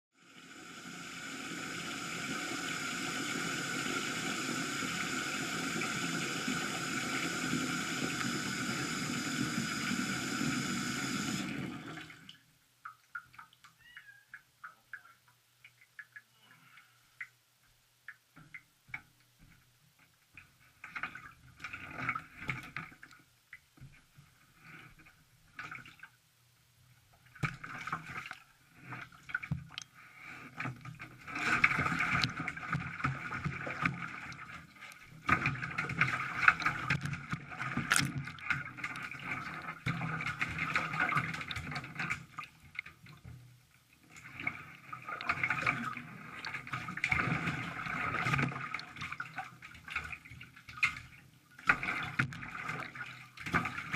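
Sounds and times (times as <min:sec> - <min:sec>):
water splashing and sloshing: 0:11.2 - 0:53.9.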